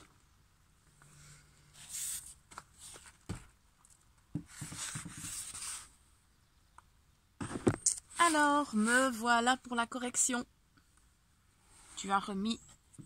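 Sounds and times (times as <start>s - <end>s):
paper and cardboard rustling: 1.8s - 3.6s, 4.4s - 5.9s.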